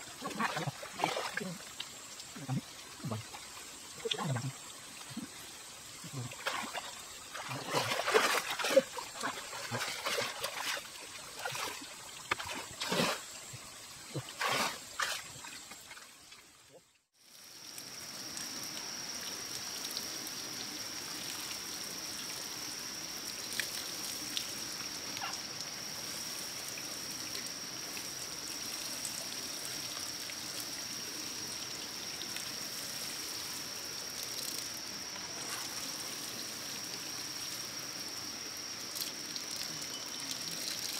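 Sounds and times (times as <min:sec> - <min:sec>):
trickle of running water: 0:00.0 - 0:40.9
water splashes and knocks: 0:00.2 - 0:05.3, 0:06.1 - 0:13.3, 0:14.1 - 0:16.5.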